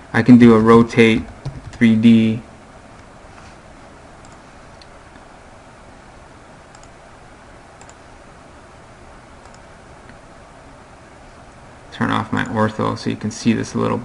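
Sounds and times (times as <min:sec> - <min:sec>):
steady low hiss: 0:00.0 - 0:14.0
computer mouse clicks: 0:04.2 - 0:04.9, 0:06.7 - 0:07.0, 0:07.8 - 0:08.0, 0:09.4 - 0:10.2.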